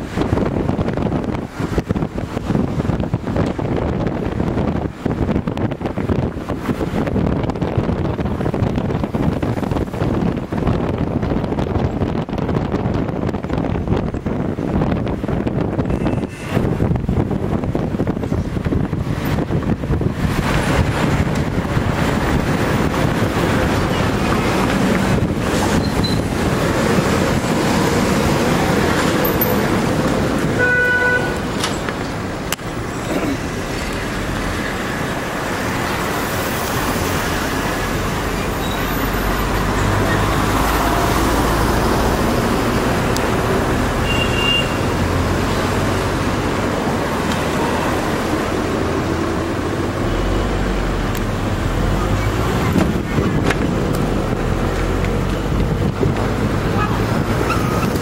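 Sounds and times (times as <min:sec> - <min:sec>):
city street traffic: 0:00.0 - 0:58.0
vehicle horn: 0:15.9 - 0:16.6, 0:30.5 - 0:31.5, 0:44.0 - 0:45.0.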